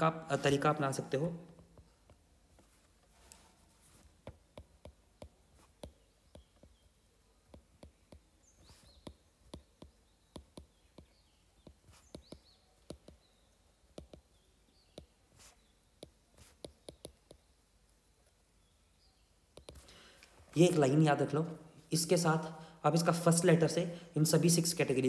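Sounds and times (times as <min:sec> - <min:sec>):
stylus tapping on tablet screen: 0:01.5 - 0:02.7, 0:04.0 - 0:17.6, 0:19.5 - 0:20.0.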